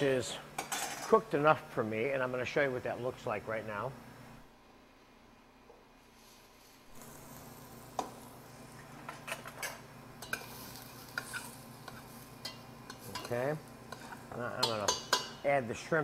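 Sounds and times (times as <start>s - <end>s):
vegetables sizzling: 6.2s - 16.0s
metal spoon scraping a pot: 9.2s - 15.4s.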